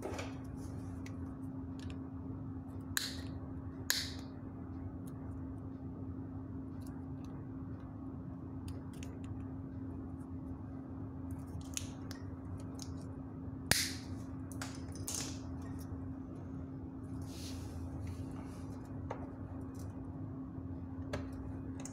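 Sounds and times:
steady low hum: 0:00.0 - 0:21.9.

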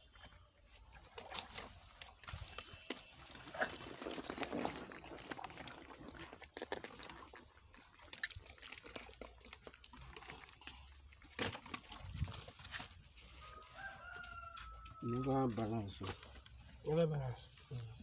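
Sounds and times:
catfish slapping in water: 0:00.9 - 0:13.2.

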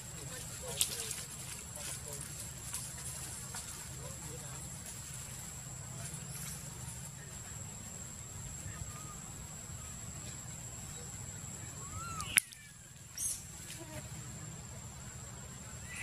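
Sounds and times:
sharp click: 0:12.2 - 0:12.7.

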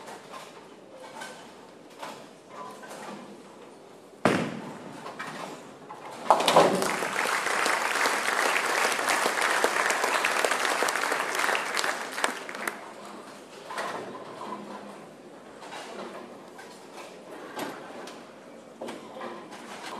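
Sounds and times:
thump: 0:04.2 - 0:04.8
bowling ball crashing into pins: 0:04.2 - 0:04.9, 0:06.2 - 0:07.0
crowd applauding: 0:06.3 - 0:13.0.

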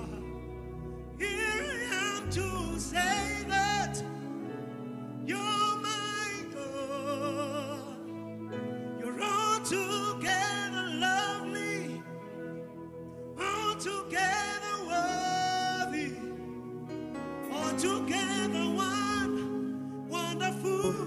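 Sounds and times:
low bass: 0:00.0 - 0:04.1
person singing with vibrato: 0:00.0 - 0:16.8, 0:17.4 - 0:21.0
sustained keyboard chords: 0:00.0 - 0:21.0.

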